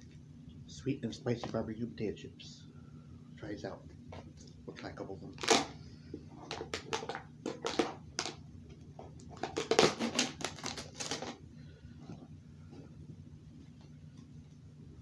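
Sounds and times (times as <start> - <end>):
can lid and seal crinkling: 6.4 - 8.4, 9.1 - 11.4.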